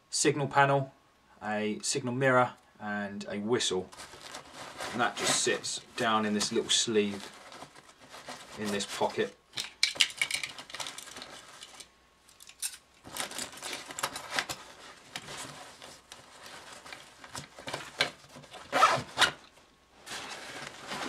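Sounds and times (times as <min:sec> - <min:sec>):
backpack fabric rustling: 0:03.9 - 0:09.2, 0:13.0 - 0:21.0.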